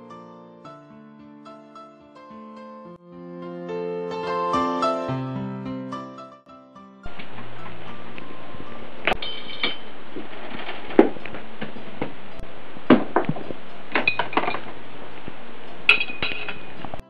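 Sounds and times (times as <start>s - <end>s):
steady hiss: 7.1s - 17.0s
balls knocking and clinking: 9.1s - 12.2s, 12.9s - 14.8s, 15.9s - 17.0s.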